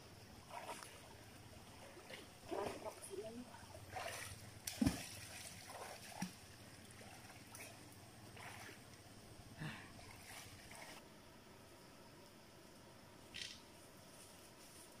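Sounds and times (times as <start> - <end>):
river water splashing: 0.4 - 11.0.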